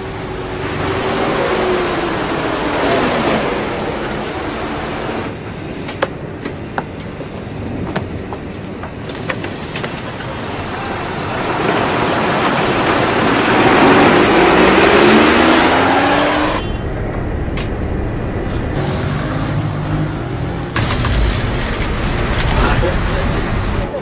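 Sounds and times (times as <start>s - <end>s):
traffic rumble: 0.0s - 24.0s
vehicle engine accelerating: 10.4s - 24.0s.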